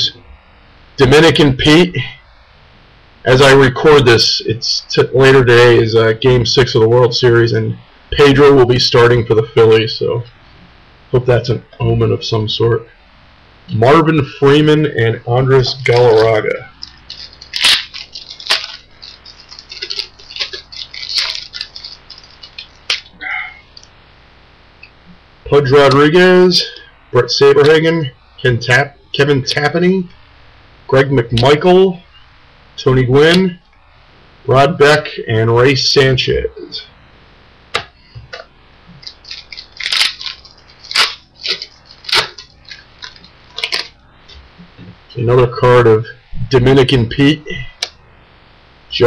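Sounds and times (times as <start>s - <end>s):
cards clicking and slapping: 15.9s - 23.1s, 37.8s - 43.9s.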